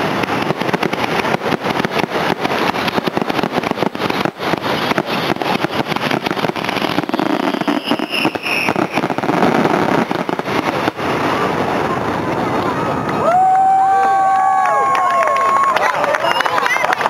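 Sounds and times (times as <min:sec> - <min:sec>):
whistling firework shell: 0:00.0 - 0:10.9, 0:16.1 - 0:16.7
fireworks bursting: 0:00.0 - 0:17.0.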